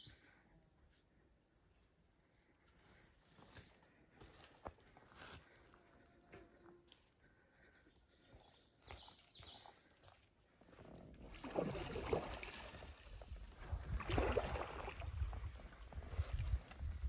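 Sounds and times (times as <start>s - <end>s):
bird chirping: 0.0s - 0.2s, 7.9s - 9.8s.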